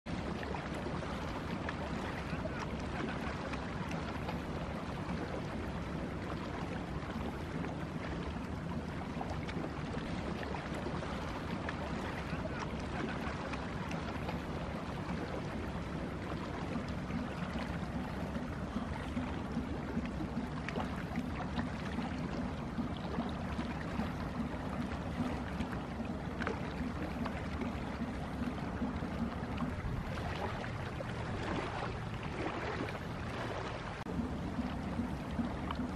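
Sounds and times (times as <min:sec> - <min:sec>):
water washing: 0:08.7 - 0:35.9.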